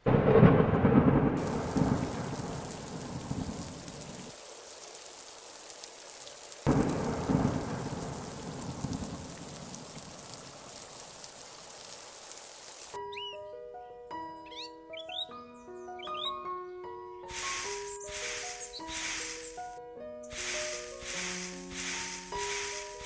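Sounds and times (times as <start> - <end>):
rolls of thunder: 0.0 - 4.4, 6.7 - 11.8
steady rain hiss: 1.4 - 13.0, 17.3 - 23.0.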